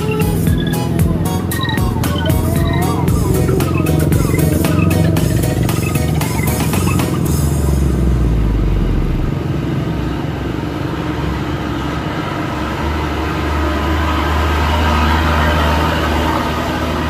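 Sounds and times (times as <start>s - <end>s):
truck diesel engine driving past: 0.0s - 17.0s.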